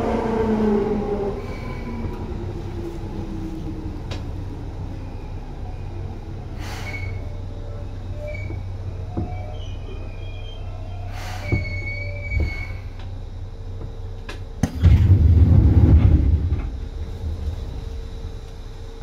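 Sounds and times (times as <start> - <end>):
train rumble: 0.0 - 19.0
wheel squeals: 6.7 - 13.0.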